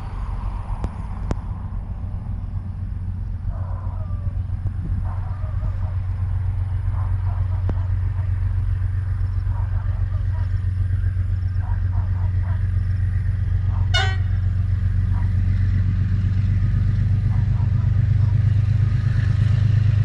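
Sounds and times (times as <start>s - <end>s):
diesel locomotive engine drone: 0.0s - 20.0s
train horn toot: 13.9s - 14.6s.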